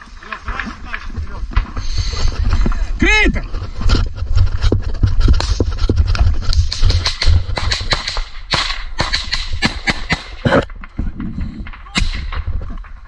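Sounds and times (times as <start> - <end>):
branches snapping and cracking: 0.0 - 2.9
leaves rustling: 0.0 - 7.6
low camera rumble: 0.0 - 9.7.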